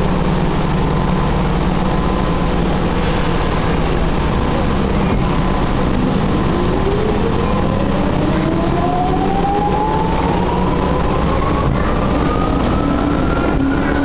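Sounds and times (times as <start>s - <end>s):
wheels rumbling on rail: 0.0s - 14.0s
traction motor whine rising: 5.5s - 14.0s.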